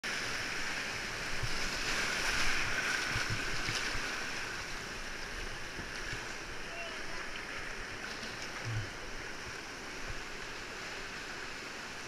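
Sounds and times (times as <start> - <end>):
whitewater rushing: 0.1 - 12.0.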